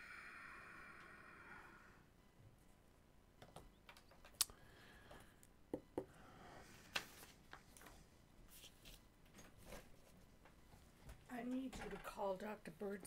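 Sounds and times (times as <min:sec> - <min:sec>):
faint high hum: 0:00.0 - 0:03.3.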